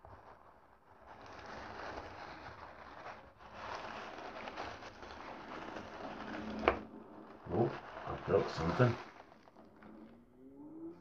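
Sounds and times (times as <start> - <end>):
shredded paper rustling: 0.0 - 10.2.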